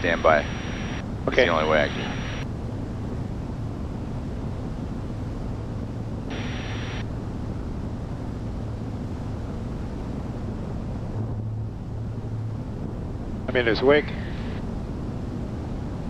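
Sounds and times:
radio hiss burst: 0:00.0 - 0:02.4, 0:06.3 - 0:07.0
aircraft engines droning: 0:00.0 - 0:16.0.

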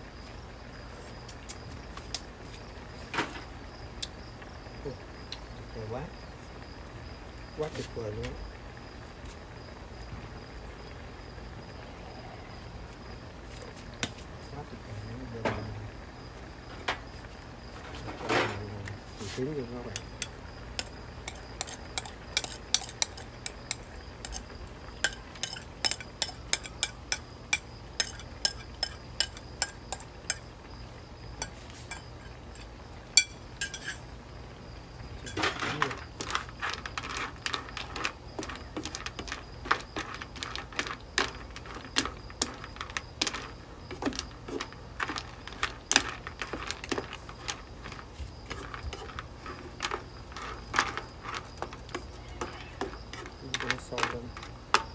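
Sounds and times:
spatula scraping in wok: 0:19.1 - 0:30.4, 0:31.4 - 0:34.1, 0:35.2 - 0:54.9
spoon clinking against bowl: 0:20.0 - 0:24.4, 0:25.0 - 0:30.4, 0:31.4 - 0:34.0.

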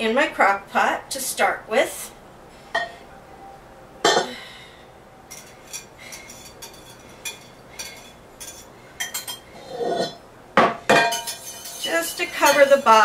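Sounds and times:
whisk clinking against bowl: 0:05.3 - 0:09.4, 0:11.0 - 0:13.0.

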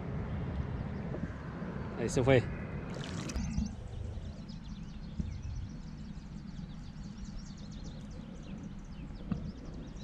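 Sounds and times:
wind on microphone: 0:00.0 - 0:10.0
small birds chirping: 0:00.6 - 0:10.0.

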